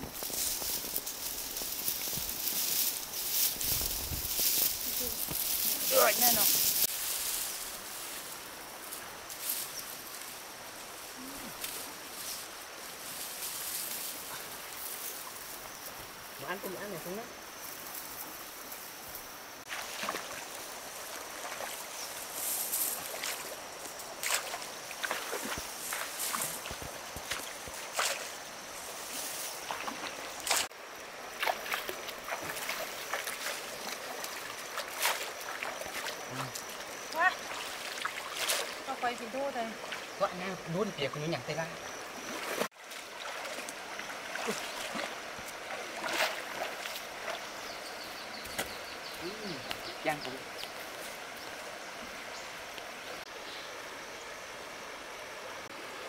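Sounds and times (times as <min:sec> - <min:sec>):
outdoor background hiss: 0:00.0 - 0:56.0
water splashing in a stream: 0:19.6 - 0:53.3.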